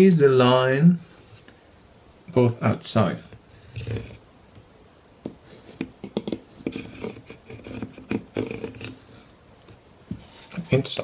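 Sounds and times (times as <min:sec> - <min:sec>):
knocks and rubbing of wood: 0:05.2 - 0:09.0
pencil scratching on wood: 0:05.5 - 0:09.0.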